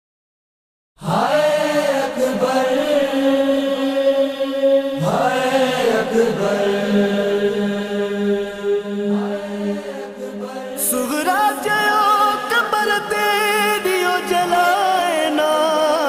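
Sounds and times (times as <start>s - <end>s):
voices chanting: 1.0s - 11.4s.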